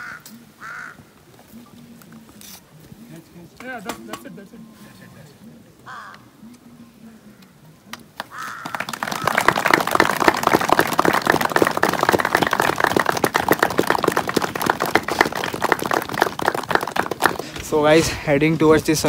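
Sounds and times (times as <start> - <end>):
group of people clapping: 7.9 - 17.7.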